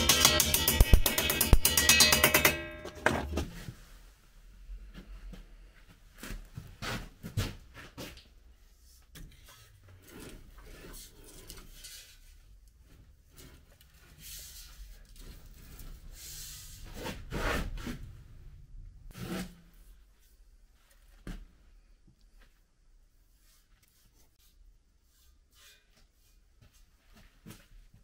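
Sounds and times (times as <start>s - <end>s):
rubbing and scraping: 0.0s - 4.0s, 9.1s - 18.2s.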